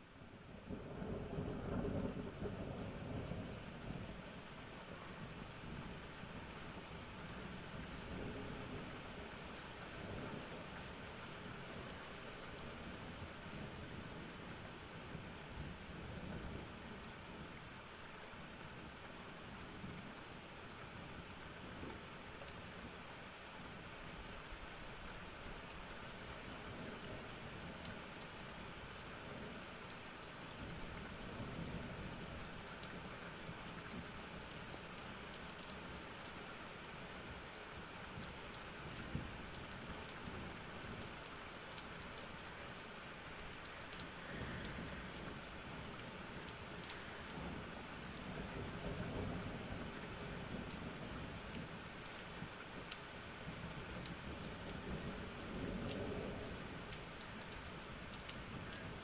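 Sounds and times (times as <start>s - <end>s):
rain hissing: 35.2s - 59.0s
raindrops ticking: 41.1s - 49.2s.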